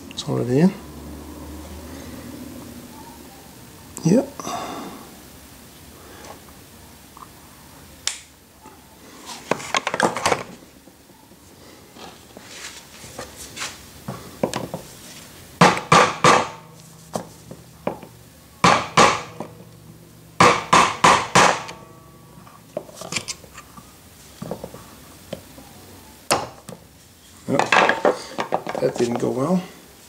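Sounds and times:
hammer striking steel punch: 20.4 - 21.9.

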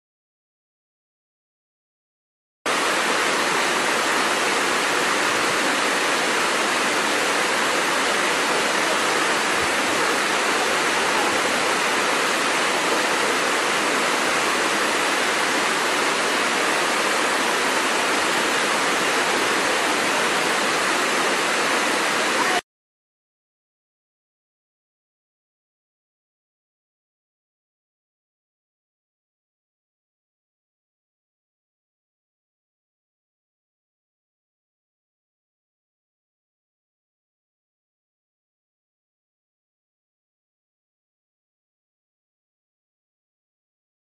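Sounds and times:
waterfall rushing: 2.7 - 22.6.

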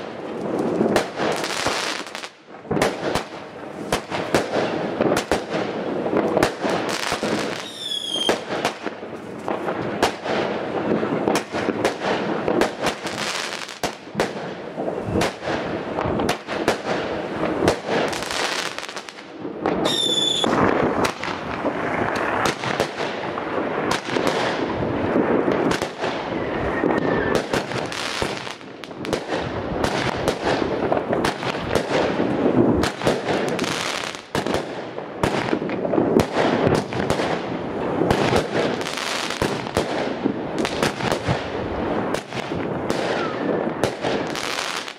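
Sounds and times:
fireworks thumps bangs and crackling: 0.0 - 44.9
falling firework whistle: 7.5 - 8.4, 19.8 - 20.6, 26.2 - 28.3.

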